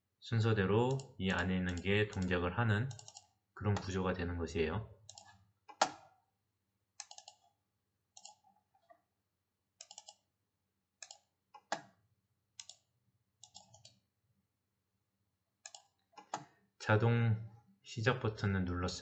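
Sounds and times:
computer mouse clicks: 1.7 - 3.9, 5.0 - 6.1, 7.0 - 7.5, 8.2 - 8.4, 9.8 - 10.3, 11.0 - 11.9, 12.6 - 12.8, 13.4 - 14.0, 15.6 - 16.5.

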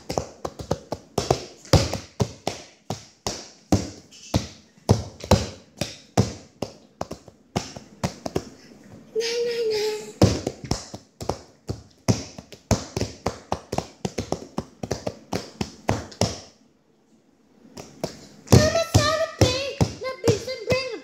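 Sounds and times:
child singing: 18.5 - 21.0.

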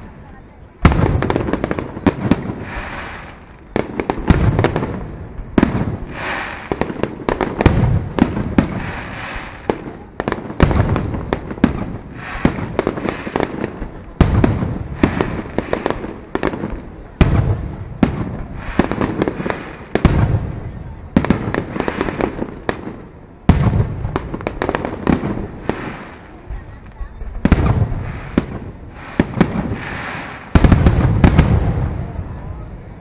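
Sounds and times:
firework crackling: 0.0 - 33.0.

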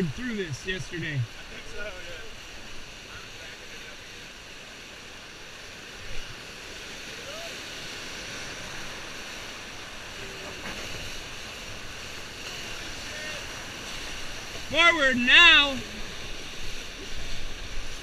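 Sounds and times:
whitewater rapids rushing: 0.0 - 18.0.

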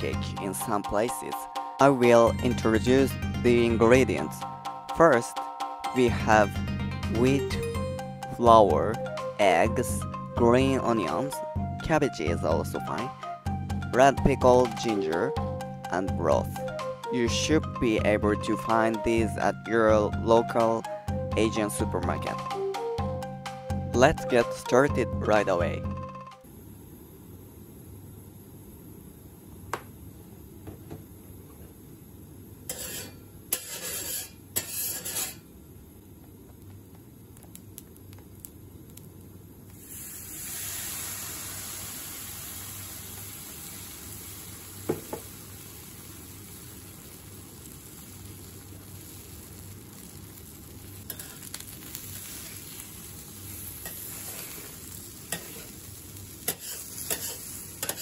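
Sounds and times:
batter sizzling on griddle: 32.6 - 35.5, 37.5 - 58.0.

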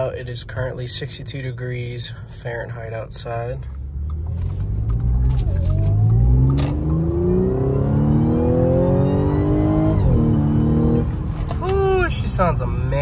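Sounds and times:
car engine accelerating: 3.7 - 13.0
high supercharger whine: 4.2 - 11.3.

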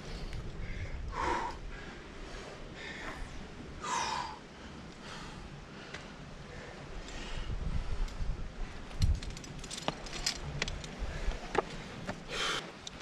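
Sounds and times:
person breathing hard: 0.0 - 8.2, 11.0 - 12.8.

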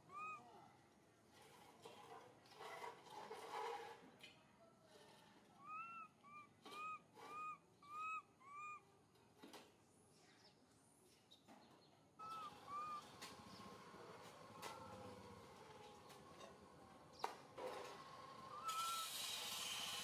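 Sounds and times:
monkey high coo calls: 0.0 - 0.5, 12.2 - 13.1, 18.5 - 19.2.

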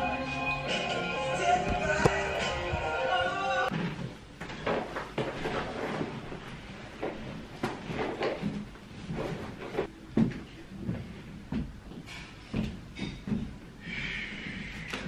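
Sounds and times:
music with sustained notes: 0.0 - 3.7
person moving about a room: 0.8 - 15.0.

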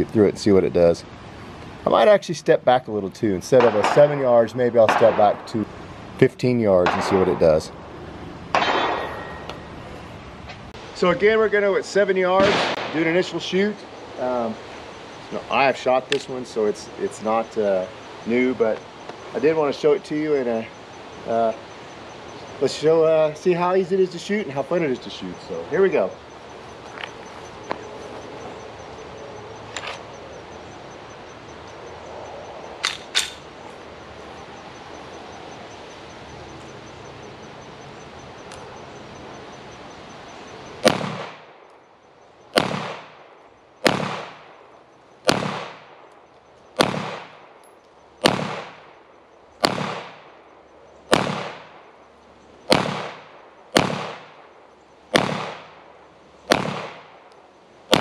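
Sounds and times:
pistol shots with echo: 3.5 - 5.6, 6.8 - 7.6, 8.5 - 9.4, 12.4 - 13.4, 40.8 - 41.6, 42.5 - 43.2, 43.8 - 44.6, 45.3 - 46.1, 46.8 - 47.6, 48.2 - 49.0, 49.6 - 50.4, 51.1 - 51.9, 52.7 - 54.4, 55.1 - 55.9, 56.5 - 57.2.

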